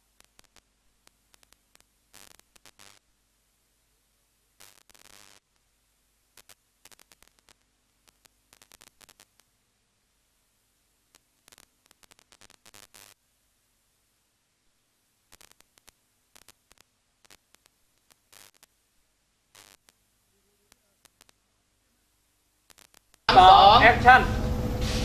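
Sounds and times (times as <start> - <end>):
bursts of crackle: 0.0 - 3.1, 4.6 - 5.7, 6.3 - 9.6, 11.1 - 13.2, 15.2 - 18.8, 19.5 - 21.4, 22.6 - 23.3
static clicks: 0.0 - 3.1, 4.6 - 9.6, 11.0 - 13.4, 15.2 - 21.5, 22.3 - 23.3
faint steady hiss: 0.0 - 25.0.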